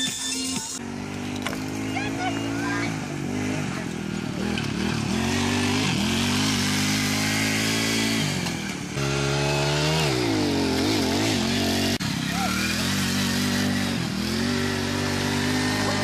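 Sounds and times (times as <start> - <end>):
small engine revving: 0.0 - 16.0.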